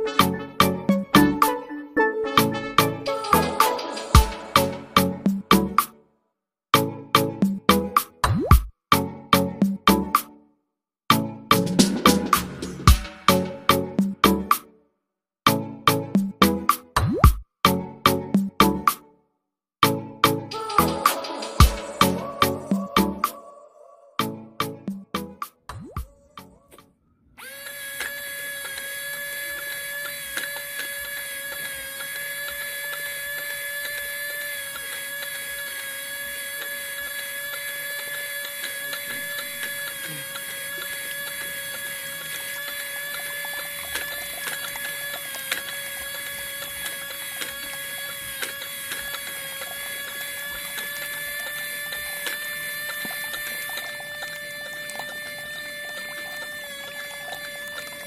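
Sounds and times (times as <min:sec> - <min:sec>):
small motor whining: 0:20.5 - 0:23.3, 0:27.2 - 0:58.0.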